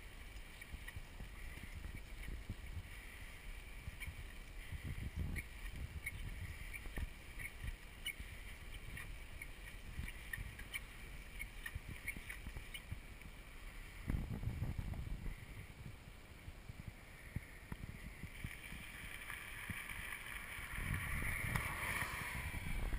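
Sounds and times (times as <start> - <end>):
faint bicycle clicks: 0.1 - 13.4
wind buffeting microphone: 0.3 - 13.1, 13.9 - 22.9.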